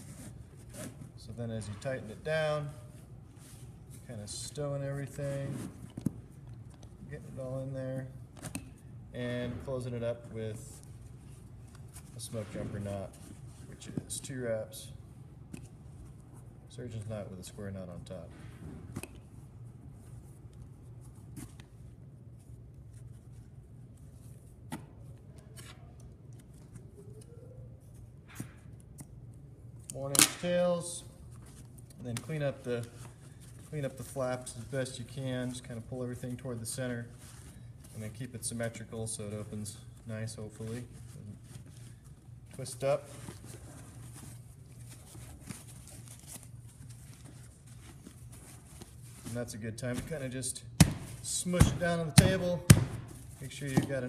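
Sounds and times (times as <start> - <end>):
faint rustling of tape: 0.0 - 54.0
low steady hum: 0.0 - 54.0
canvas and cord rustling: 30.4 - 50.3.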